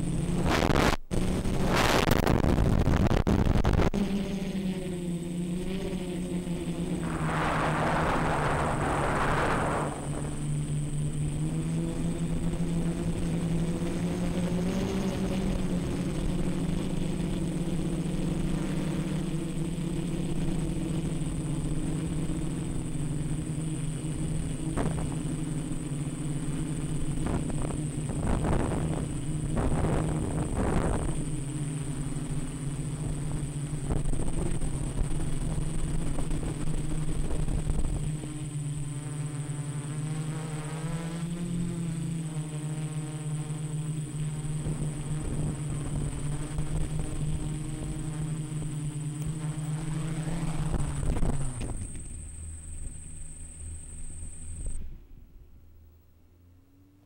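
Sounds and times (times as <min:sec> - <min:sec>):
drone motors buzzing: 0:00.0 - 0:56.1
hissing rush: 0:07.0 - 0:10.5.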